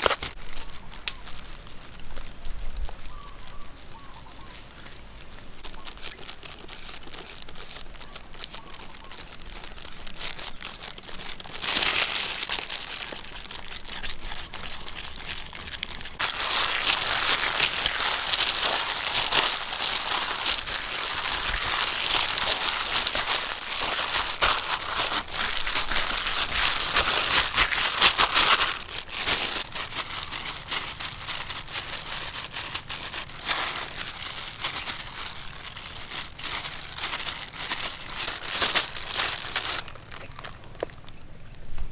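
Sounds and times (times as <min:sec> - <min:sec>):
plastic glove crinkling: 0:00.0 - 0:41.8
rustle: 0:00.0 - 0:41.9
potato grating: 0:09.9 - 0:29.7.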